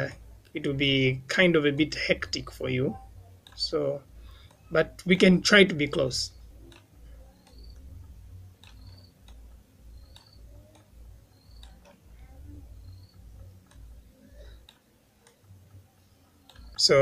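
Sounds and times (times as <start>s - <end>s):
computer mouse clicks: 4.3s - 4.7s, 6.4s - 16.8s.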